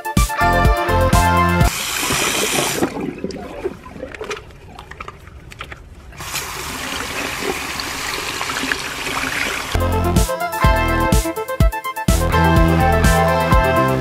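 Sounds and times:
tap water splashing into basin: 1.7s - 5.8s
clicks and handling noises: 4.0s - 6.2s.

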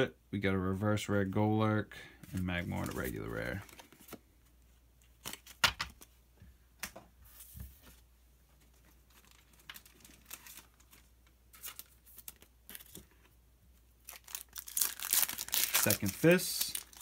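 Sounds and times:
cards and foil packaging rustling: 2.1s - 4.2s, 8.7s - 13.3s, 14.0s - 17.0s.

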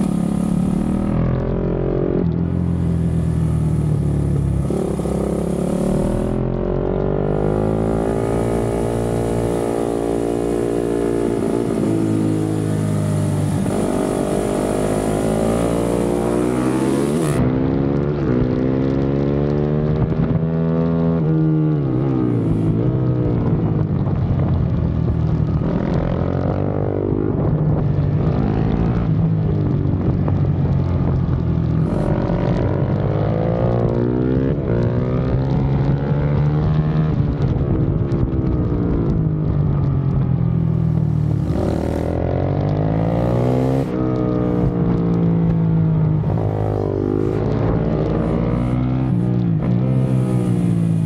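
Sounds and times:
motorcycle engine revving: 0.0s - 24.3s, 25.1s - 39.4s, 40.1s - 51.0s.

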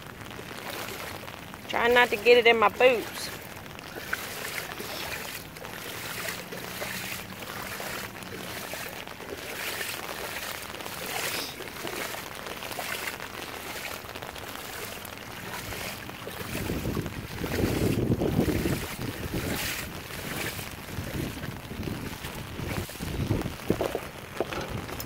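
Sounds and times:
boots wading through water: 0.0s - 25.0s
wind buffeting microphone: 15.3s - 25.0s.

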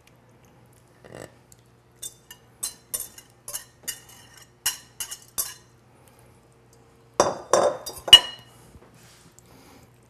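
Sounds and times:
metal spoon scraping glass bowl: 2.0s - 5.6s.

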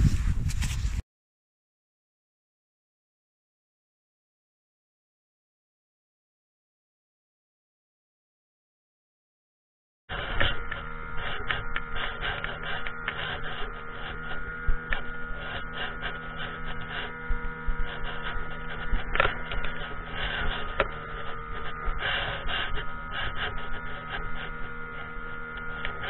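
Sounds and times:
wind: 0.0s - 1.0s, 10.1s - 26.0s
outboard motor humming: 10.1s - 26.0s.

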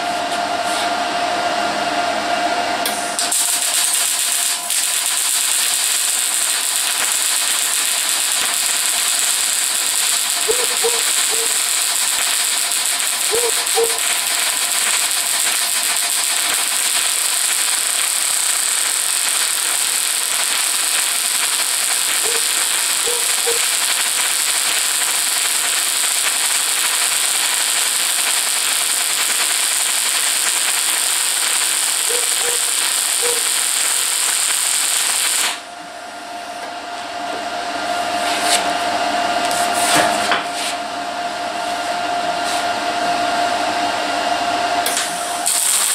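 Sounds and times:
steady hum: 0.0s - 40.2s
welder arc crackling and hissing: 2.8s - 35.7s, 44.8s - 45.9s.

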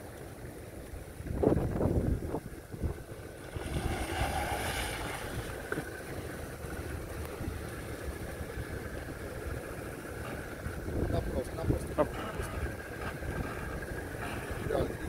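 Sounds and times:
car engine rumbling: 0.0s - 15.0s
wind gusting on microphone: 1.2s - 5.6s.

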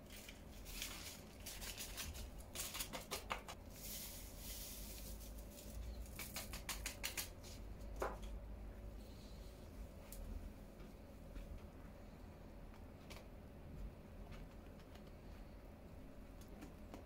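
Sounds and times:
paper packet rustling: 0.0s - 6.6s
hiss of falling powder: 3.6s - 6.4s.

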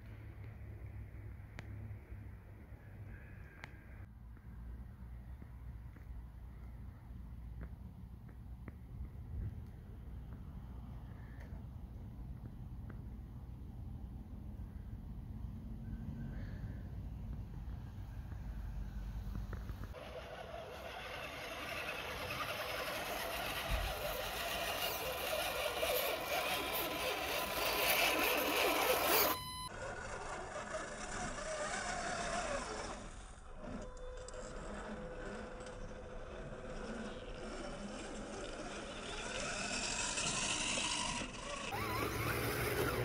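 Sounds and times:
toy truck motor whining: 19.6s - 43.0s.

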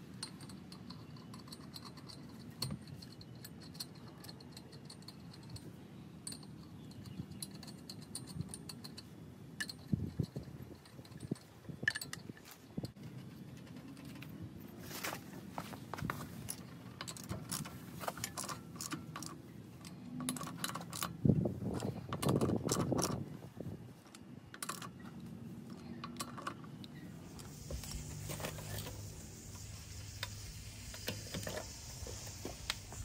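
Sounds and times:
ratchet metallic clicks: 0.1s - 14.2s.

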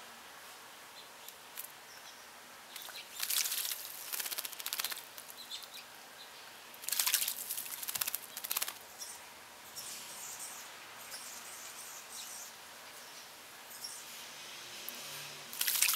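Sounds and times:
bird splashing in water: 2.8s - 5.3s, 6.8s - 8.8s, 15.5s - 15.9s.

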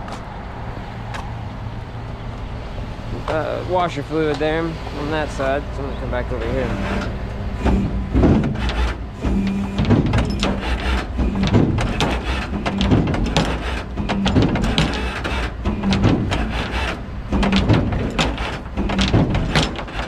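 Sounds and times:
truck engine rumbling: 0.0s - 20.0s
rapid irregular knocks and clatter: 6.4s - 20.0s.

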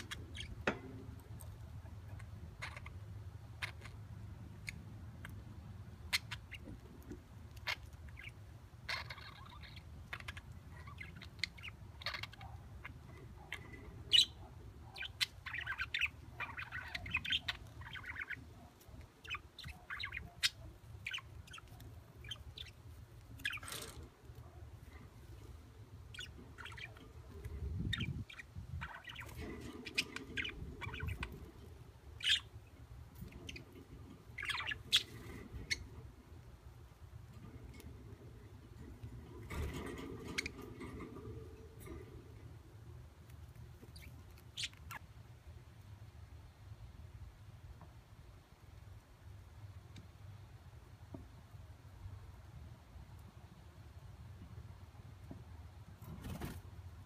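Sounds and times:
budgerigar chirping: 2.0s - 4.0s, 7.6s - 22.8s, 27.8s - 31.5s, 32.2s - 32.5s, 34.4s - 35.9s, 43.9s - 45.1s.

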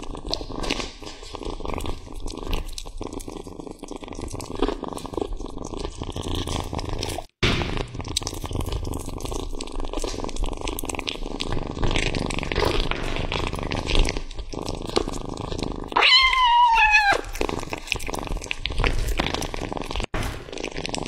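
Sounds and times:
kitten chewing meat: 0.0s - 21.0s
kitten mewing: 15.9s - 17.6s.

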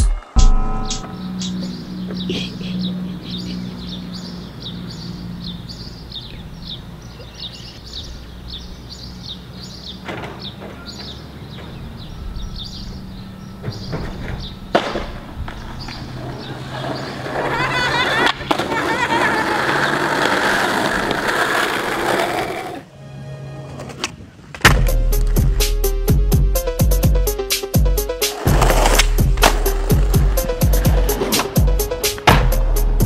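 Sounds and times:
birds chirping: 0.5s - 22.8s.

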